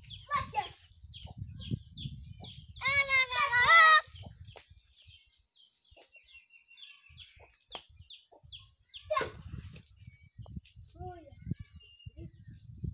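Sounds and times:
faint bird chirps: 0:04.0 - 0:12.9.

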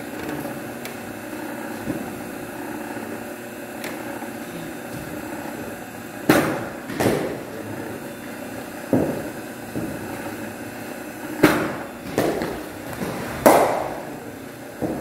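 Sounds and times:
bat striking ball: 0:13.4 - 0:14.0.

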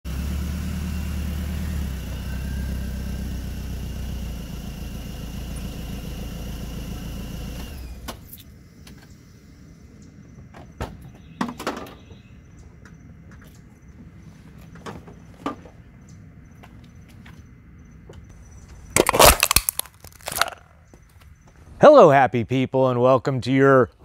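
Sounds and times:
car engine idling: 0:00.1 - 0:10.0.

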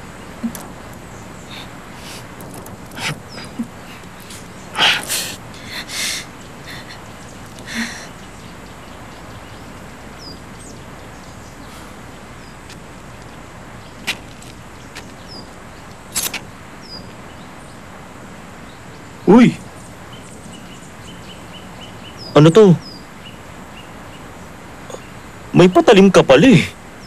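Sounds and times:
background hiss: 0:00.0 - 0:27.0
cloth and rope rustling: 0:00.4 - 0:05.9.

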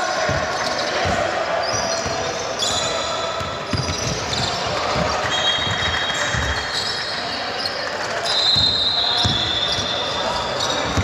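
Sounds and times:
shoes squeaking on floor: 0:00.2 - 0:11.0
basketball bouncing: 0:03.4 - 0:06.6, 0:08.6 - 0:09.9, 0:10.6 - 0:11.0.

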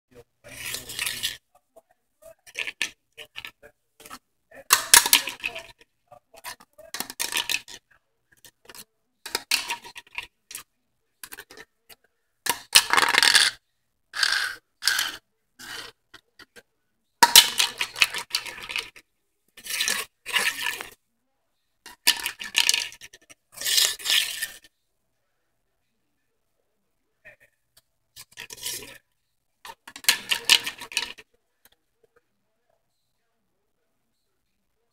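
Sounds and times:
hard object clattering on tile floor: 0:02.5 - 0:05.8, 0:06.5 - 0:07.8, 0:08.4 - 0:10.6, 0:12.5 - 0:13.6, 0:14.2 - 0:16.6, 0:17.2 - 0:19.0, 0:21.9 - 0:24.6, 0:29.7 - 0:31.2.

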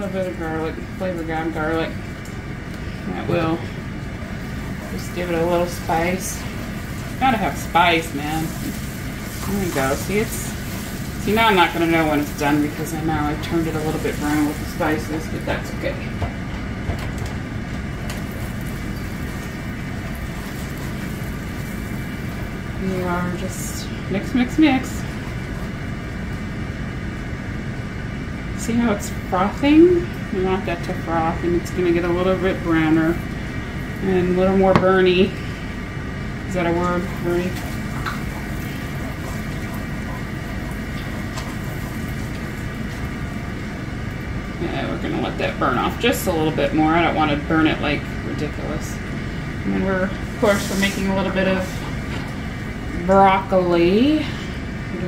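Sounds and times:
butter sizzling and foaming: 0:03.2 - 0:16.0.

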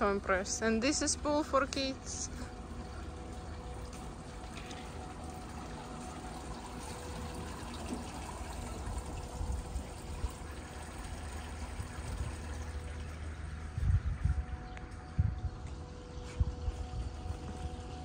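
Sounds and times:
faint steady hum: 0:00.0 - 0:18.0
pool water trickling: 0:00.0 - 0:18.0
low rumble: 0:08.8 - 0:18.0.

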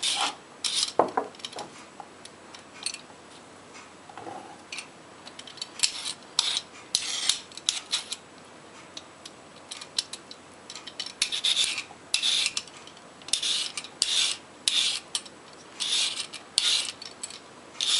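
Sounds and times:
vegetable peeler scraping carrots: 0:00.0 - 0:01.0, 0:05.8 - 0:08.2, 0:11.2 - 0:12.7, 0:13.3 - 0:15.1, 0:15.8 - 0:17.0.

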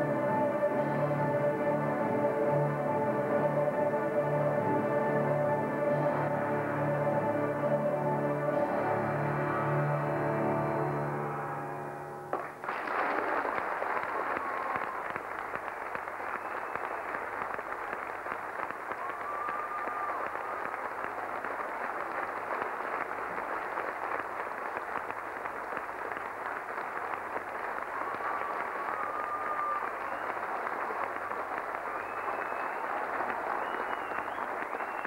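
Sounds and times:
audience applauding: 0:12.3 - 0:35.0
whistles: 0:16.2 - 0:17.2, 0:28.0 - 0:35.0.

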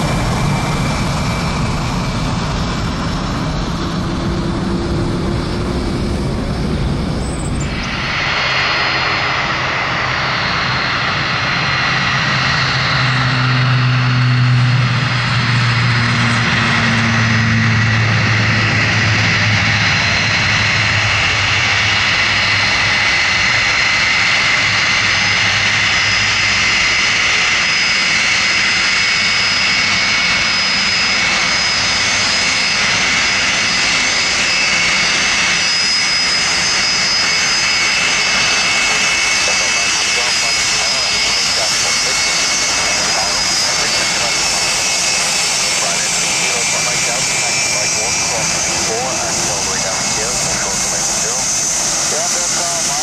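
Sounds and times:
low hum: 0:00.0 - 0:23.6
jet engine whine: 0:00.0 - 0:53.0.

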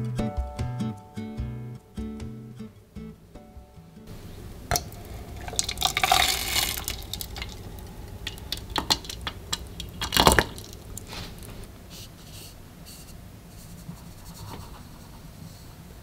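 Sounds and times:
hot water pouring into cup: 0:04.1 - 0:11.7.

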